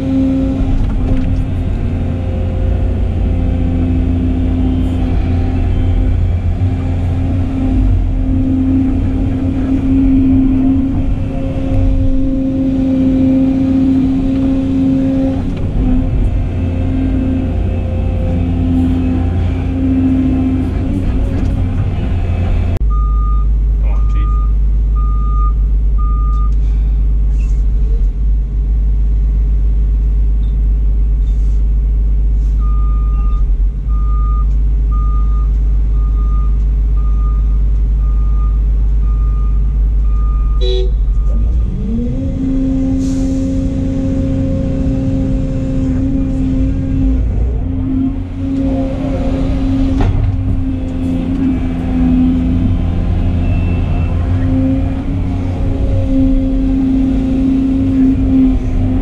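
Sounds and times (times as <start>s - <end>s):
excavator diesel engine running: 0.0s - 59.0s
hydraulics working drone: 0.0s - 59.0s
backup alarm beeping: 22.9s - 26.6s, 32.6s - 42.0s.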